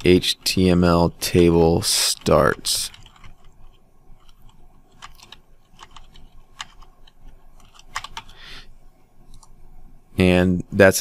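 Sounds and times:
keyboard typing: 2.1s - 8.4s.

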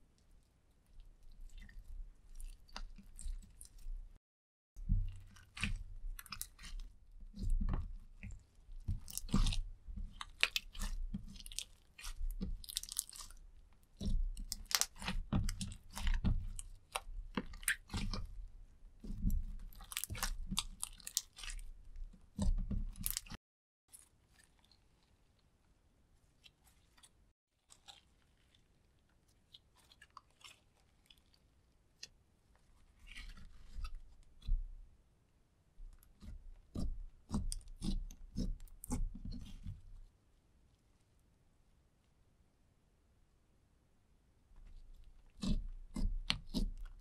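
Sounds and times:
slime squelching and clicking: 5.1s - 23.4s, 26.4s - 32.2s, 35.9s - 39.8s, 45.0s - 47.0s
slime being stretched: 5.2s - 18.4s, 19.0s - 23.4s.

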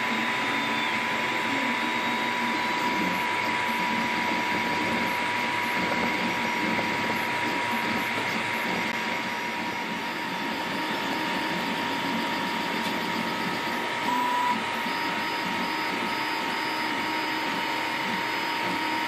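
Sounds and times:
printer motors and fans whirring: 0.0s - 19.0s
thin constant whine: 0.0s - 19.0s
brief loud tone: 14.0s - 14.6s.

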